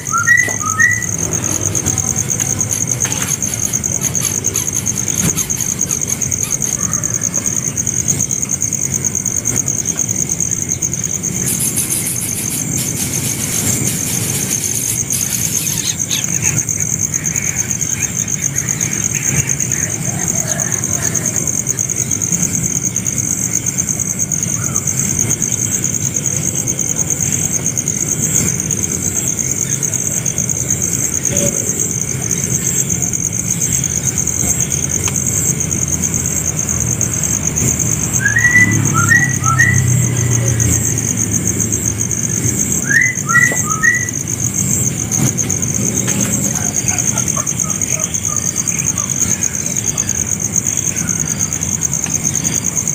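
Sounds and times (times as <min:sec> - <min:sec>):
bird chirps: 0:00.0 - 0:07.5, 0:10.6 - 0:20.6, 0:37.6 - 0:41.1, 0:42.2 - 0:51.4
insects trilling: 0:00.0 - 0:52.9.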